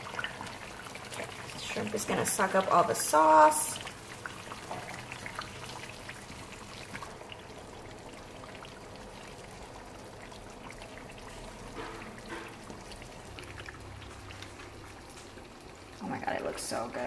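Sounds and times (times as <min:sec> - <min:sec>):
sauce simmering in a frying pan: 0:00.0 - 0:17.0
wooden spoon scraping a pan: 0:11.7 - 0:12.8.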